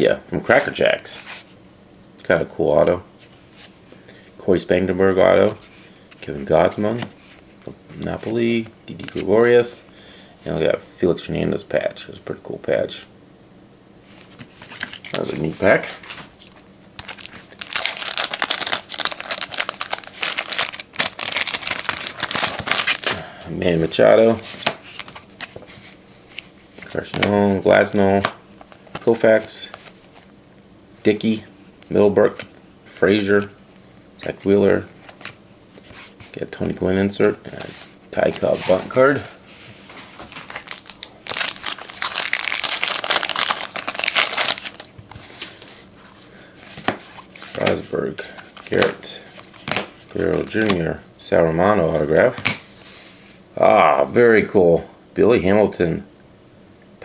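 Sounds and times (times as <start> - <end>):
plastic wrapper crinkling: 17.0 - 23.2, 40.2 - 45.0.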